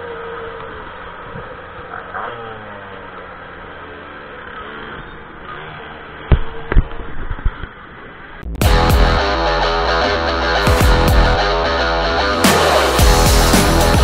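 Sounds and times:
minimoto engines running: 0.0 - 14.0
music: 8.6 - 14.0.

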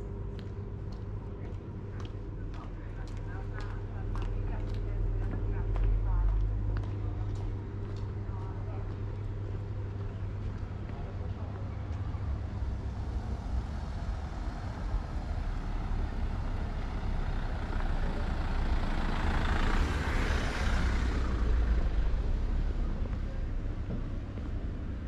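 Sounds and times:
low traffic rumble: 0.0 - 25.0
vehicle driving past: 12.1 - 23.3.

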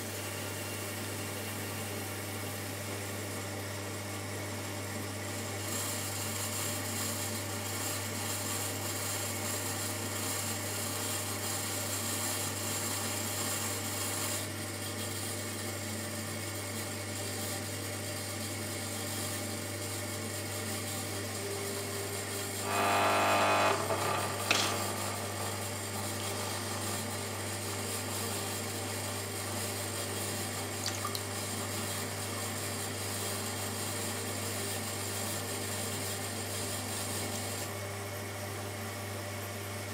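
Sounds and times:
potter's wheel motor humming: 20.8 - 31.3
pitched whine: 22.6 - 26.6.

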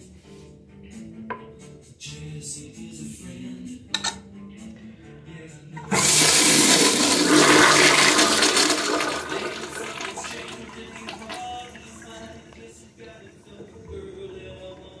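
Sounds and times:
toilet flushing: 5.8 - 15.0.

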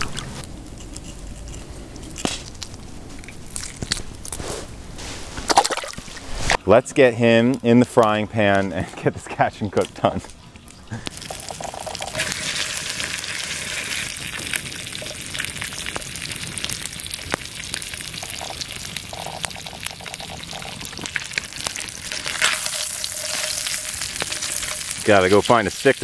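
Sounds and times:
fish sizzling in a hot pan: 11.1 - 26.0.

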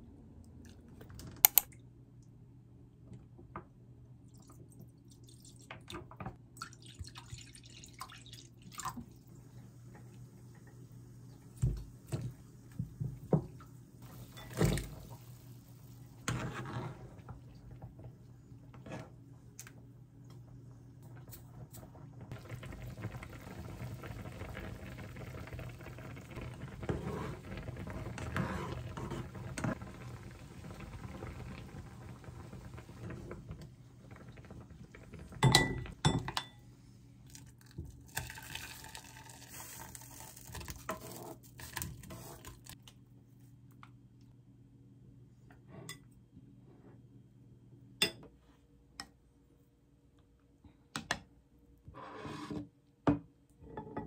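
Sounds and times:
soup simmering in a pan: 21.1 - 36.2, 38.1 - 41.1.

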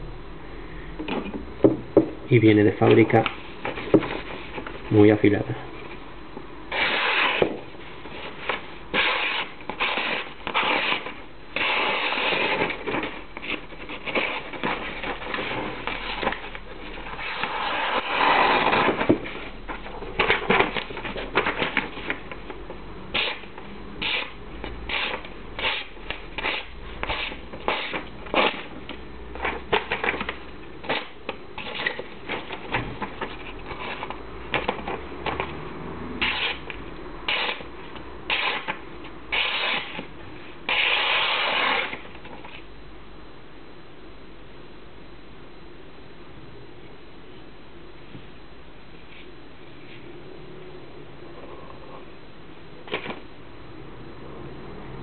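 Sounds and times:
paper rustling: 2.8 - 5.0, 6.7 - 35.6
knife slicing paper: 6.7 - 7.5, 8.9 - 16.5, 23.2 - 28.7, 36.2 - 36.7, 37.3 - 37.6, 38.3 - 40.0, 40.7 - 42.0.

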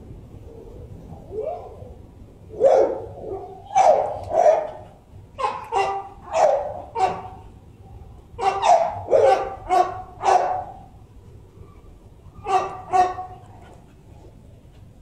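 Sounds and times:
dog barking: 2.6 - 7.4, 8.4 - 10.9, 12.4 - 13.6.

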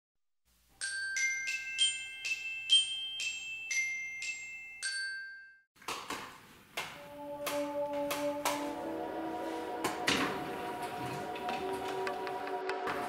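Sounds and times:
bright bell notes jingle: 0.8 - 5.7.

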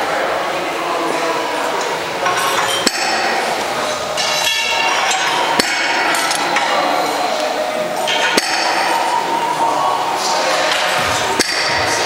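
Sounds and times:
steady background noise: 0.0 - 12.0
weight plates clinking: 2.2 - 9.5.

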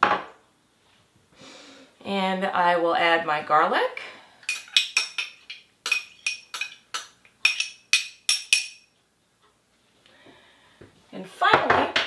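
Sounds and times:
spoon clinking on glass bowl: 4.5 - 8.9.

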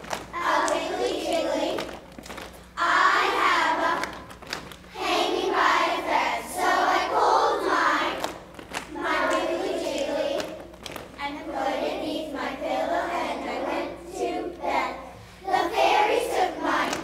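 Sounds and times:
children singing in unison: 5.0 - 8.3, 12.0 - 17.0.

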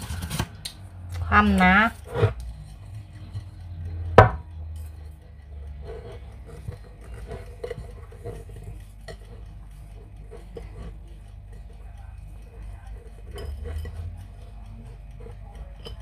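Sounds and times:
glass bowl knocking on wood: 4.1 - 4.5.

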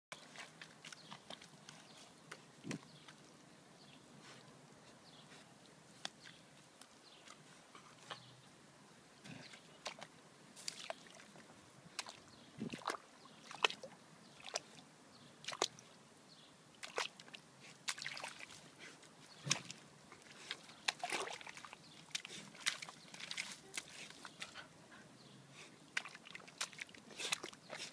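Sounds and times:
dog digging in muddy soil: 0.1 - 3.2, 16.8 - 24.8, 25.6 - 27.9.

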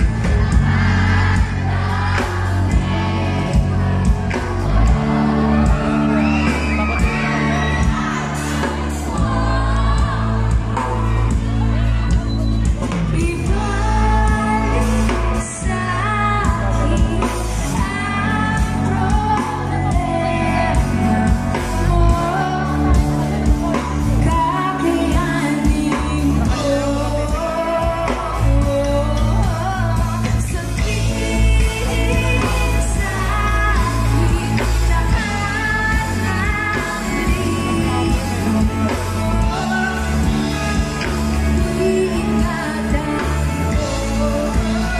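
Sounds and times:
live band playing: 0.0 - 44.9
person singing: 0.0 - 44.9.

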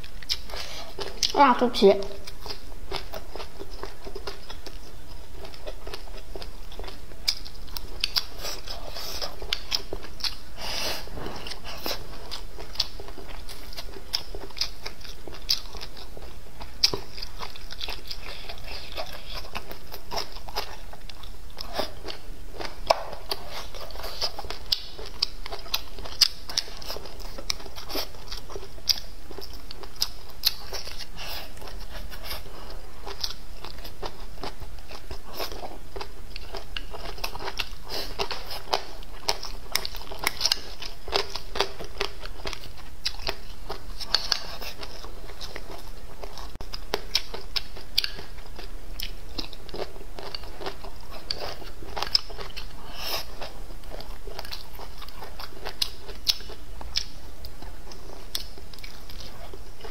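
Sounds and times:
person chewing food: 0.0 - 1.5, 2.2 - 59.9
low steady hum: 0.0 - 59.9
food crunching: 2.2 - 59.9.

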